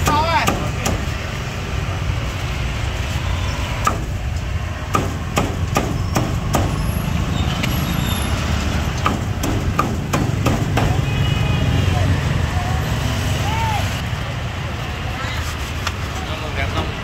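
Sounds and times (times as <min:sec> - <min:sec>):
cleaver chopping meat: 0:04.9 - 0:06.7, 0:09.0 - 0:11.0.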